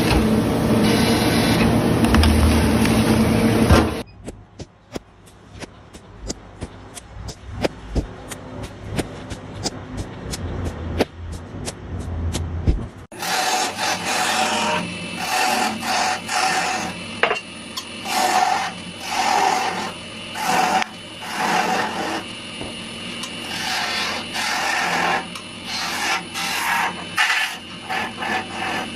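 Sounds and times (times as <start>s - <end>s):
chisel rasping on spinning wood: 13.1s - 17.0s, 18.0s - 22.2s, 23.3s - 28.9s
wood lathe turning: 13.1s - 17.0s, 18.0s - 22.3s, 23.2s - 28.9s.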